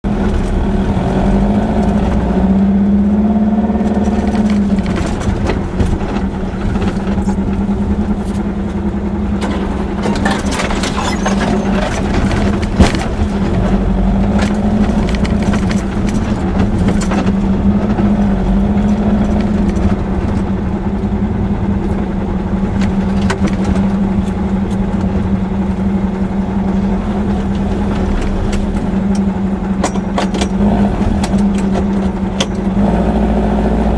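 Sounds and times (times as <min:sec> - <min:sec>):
car engine running: 0:00.0 - 0:33.9
car body rattling: 0:03.8 - 0:32.8.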